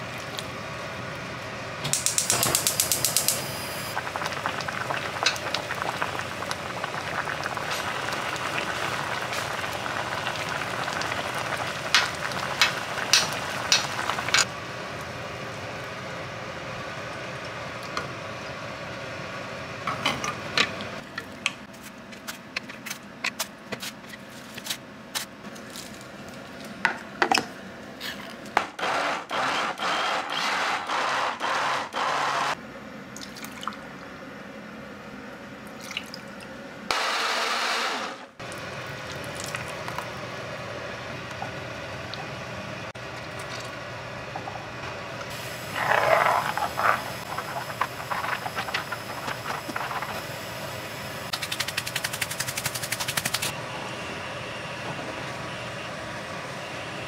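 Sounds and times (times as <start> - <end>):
utensils clicking and knocking: 1.9 - 3.4
running water noise: 3.9 - 14.5, 45.3 - 50.3.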